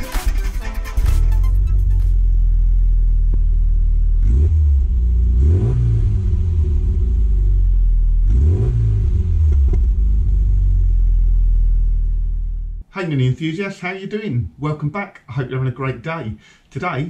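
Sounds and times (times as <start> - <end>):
car engine idling and revving: 1.4 - 12.8.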